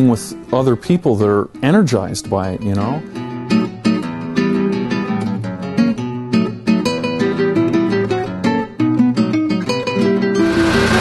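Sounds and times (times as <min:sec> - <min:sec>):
acoustic guitar plucked notes: 0:00.0 - 0:11.0
steady bass line: 0:10.4 - 0:11.0.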